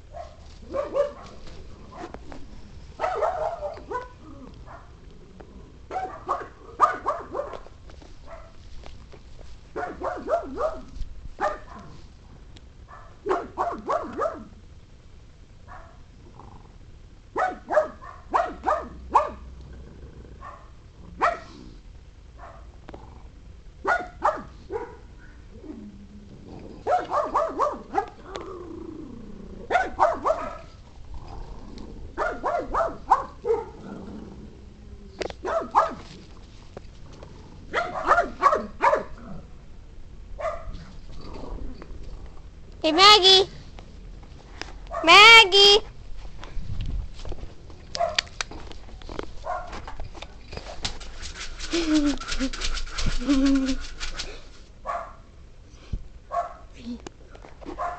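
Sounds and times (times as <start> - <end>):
dog barking: 0.1 - 1.4, 3.0 - 4.9, 5.9 - 7.6, 9.8 - 11.9, 12.9 - 14.5, 17.4 - 19.5, 20.4 - 21.5, 22.4 - 22.7, 23.8 - 25.1, 26.9 - 28.2, 29.7 - 30.7, 32.2 - 33.8, 35.4 - 36.0, 37.7 - 39.2, 40.4 - 40.7, 48.0 - 48.3, 49.4 - 49.7, 54.9 - 55.2, 56.3 - 56.7.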